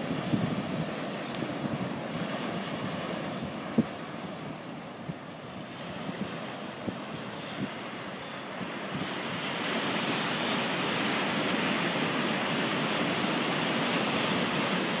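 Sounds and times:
surf washing up beach: 0.0 - 15.0.

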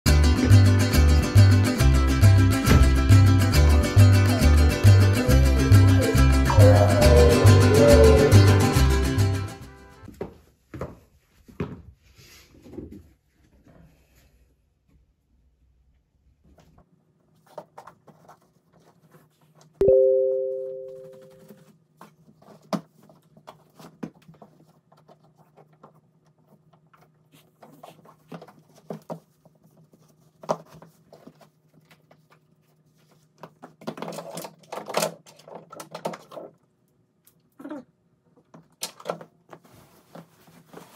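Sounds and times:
shuffling on tiled floor: 10.0 - 14.7, 21.0 - 33.8, 39.5 - 40.9
fabric rustling: 39.6 - 40.9.

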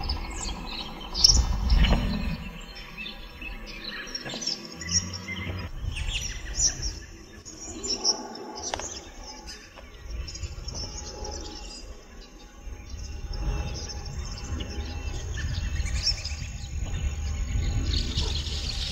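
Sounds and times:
flock of birds chirping: 0.0 - 18.9
low rumble: 0.0 - 18.9.

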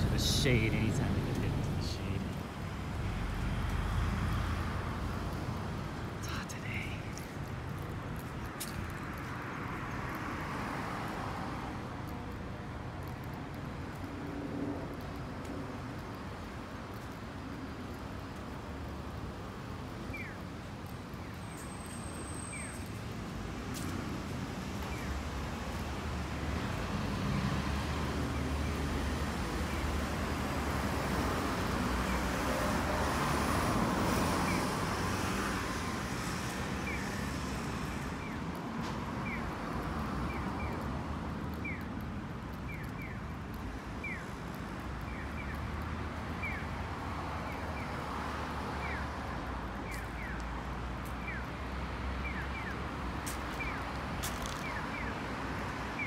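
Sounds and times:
cars going by: 0.0 - 56.0.

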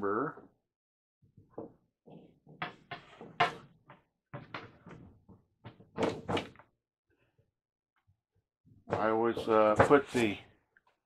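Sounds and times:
plastic drumhead scraping and knocking: 8.8 - 10.4.

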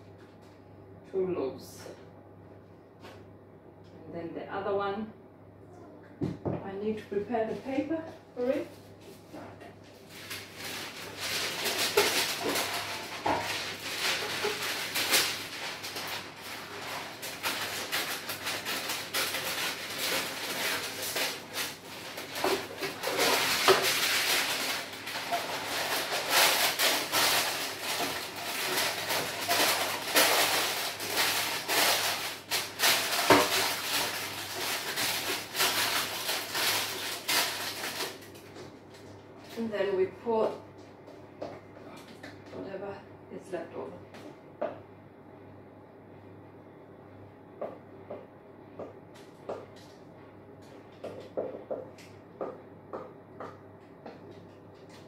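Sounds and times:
baking paper rustling and crinkling: 7.4 - 39.7.

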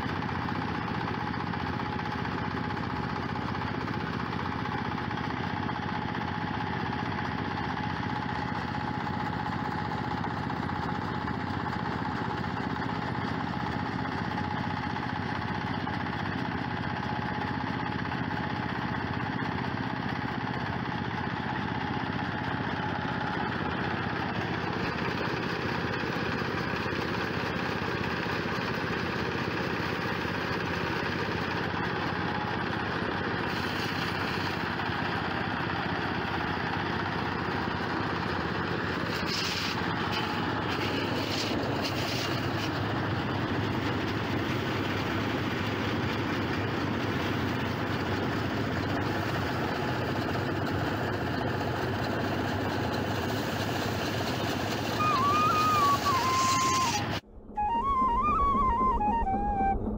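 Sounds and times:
diesel engine running under load: 0.0 - 59.9
thresher whine: 53.3 - 59.9.

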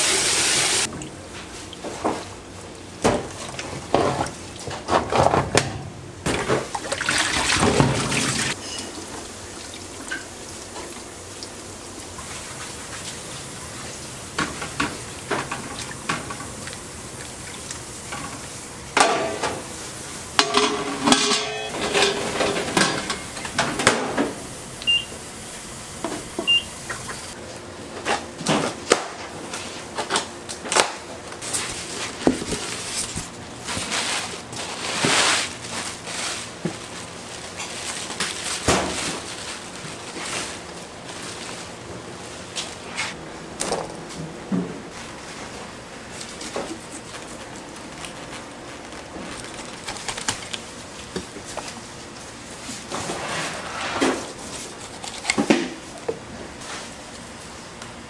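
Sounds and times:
steel pot clanking: 20.4 - 23.4
plastic wrap scrapes and clicks: 46.2 - 51.2.

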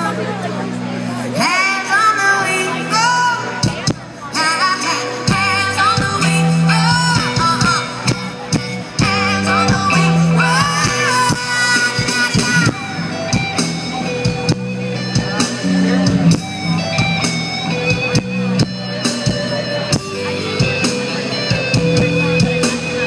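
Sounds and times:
live rock band playing: 0.0 - 23.0
woman singing: 1.4 - 8.2, 9.0 - 12.8.

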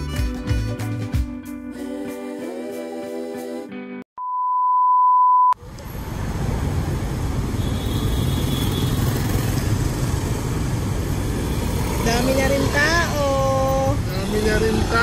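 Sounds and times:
music: 0.0 - 4.0
steady beep: 4.2 - 5.6
city street traffic: 5.5 - 15.0.

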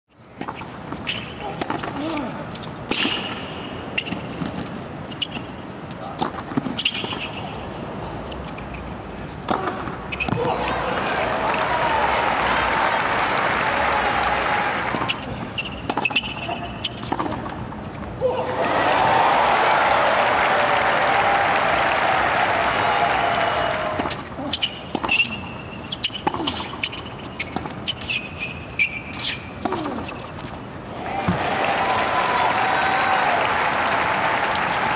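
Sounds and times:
shoes squeaking on court: 0.1 - 10.8, 13.8 - 18.3, 23.8 - 30.9
racket hitting tennis ball: 0.4 - 5.4, 6.1 - 7.6, 9.3 - 10.8, 13.8 - 18.4, 23.8 - 30.6
crowd applause: 10.8 - 15.0, 18.4 - 24.0, 31.0 - 34.9.

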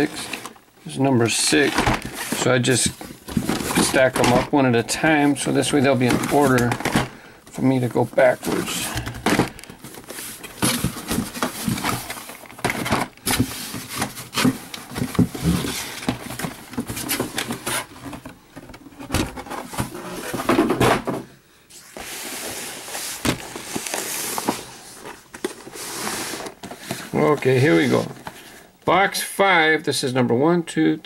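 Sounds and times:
cardboard scraping against cardboard: 21.7 - 28.5.

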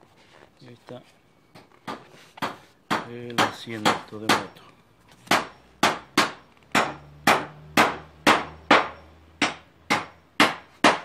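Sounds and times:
sharp ringing knocks: 1.6 - 4.6, 5.3 - 11.0.

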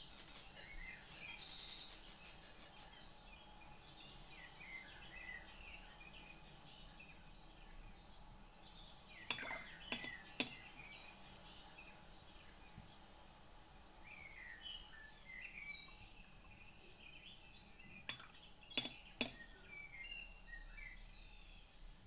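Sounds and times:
faint birds chirping: 0.0 - 22.0
paintbrush clinking on hard gear: 9.3 - 10.6.

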